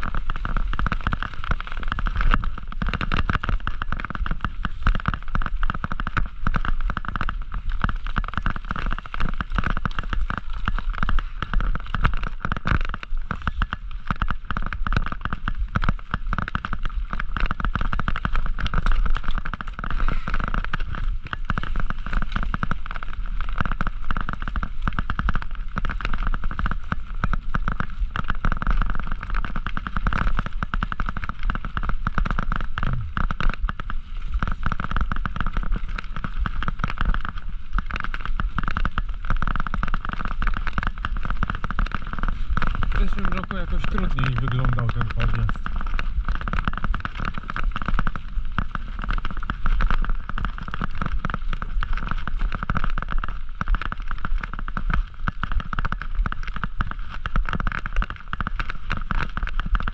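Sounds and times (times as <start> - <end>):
low rumble: 32.7 - 33.4.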